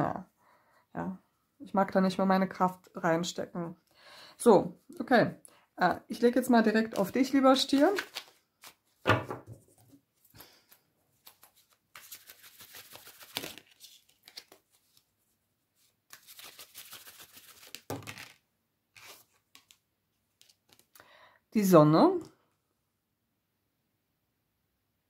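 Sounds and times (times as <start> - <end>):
cards being shuffled: 6.8 - 9.3, 10.4 - 15.1, 15.8 - 18.4, 19.0 - 21.0
knock: 9.1 - 9.6.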